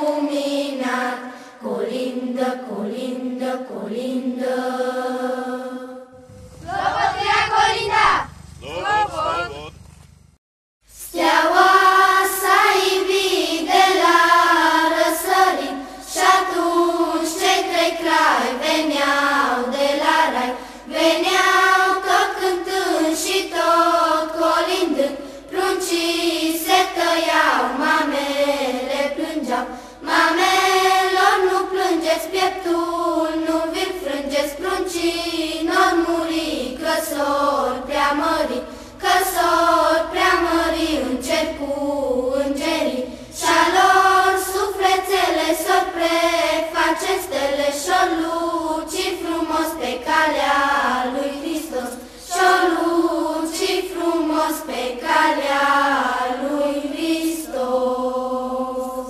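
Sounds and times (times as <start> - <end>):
children's choir singing: 0.0 - 9.7, 11.0 - 59.0.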